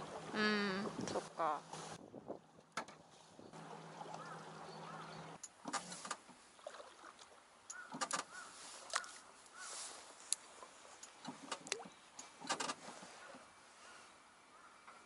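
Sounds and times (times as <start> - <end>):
clicks and knocks on boat: 2.6 - 3.1, 7.7 - 9.1, 11.0 - 12.9.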